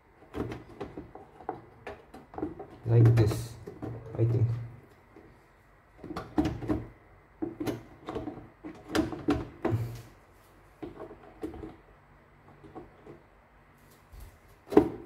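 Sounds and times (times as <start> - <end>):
plastic knocks and clicks: 0.3 - 4.6, 6.0 - 10.0.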